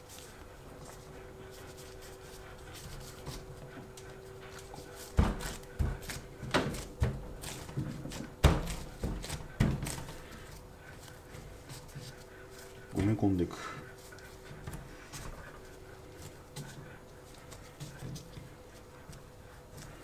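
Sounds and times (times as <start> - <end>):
thumps of kneading dough: 4.6 - 10.6.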